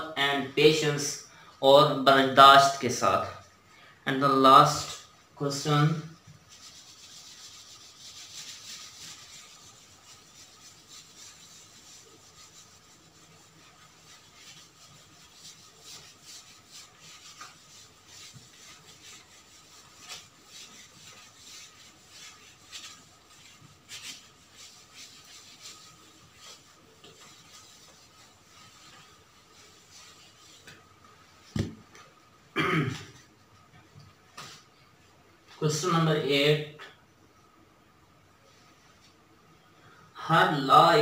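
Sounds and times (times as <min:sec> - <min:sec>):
marker pen scratching on whiteboard: 0:06.2 - 0:31.8.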